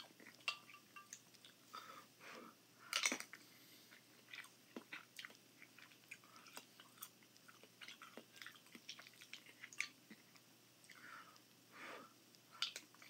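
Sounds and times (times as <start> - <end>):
close-up chewing: 2.9 - 11.6, 12.3 - 13.0.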